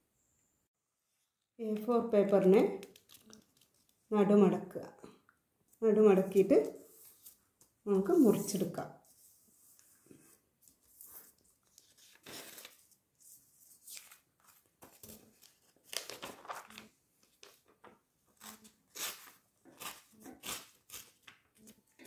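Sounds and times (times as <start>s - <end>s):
paper rustling and crinkling: 2.5s - 4.0s, 9.0s - 22.0s.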